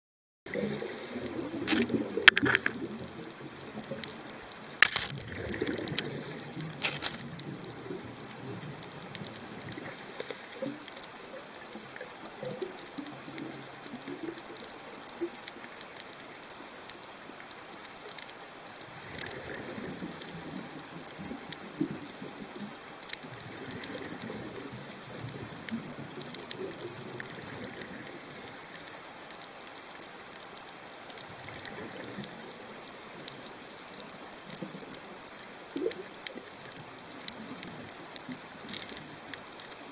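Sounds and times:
underwater watery hiss: 0.5 - 3.1, 5.2 - 11.6, 18.9 - 22.4, 23.3 - 29.1, 31.3 - 34.9
gurgling bubbles: 0.5 - 15.4, 18.9 - 28.8, 31.2 - 33.9
sharp clicks: 1.7 - 2.8, 4.8 - 5.2.

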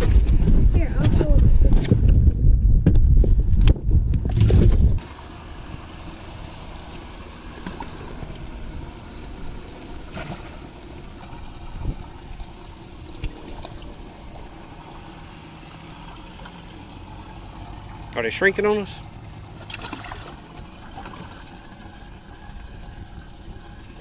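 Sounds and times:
water spraying and trickling: 5.0 - 24.0.

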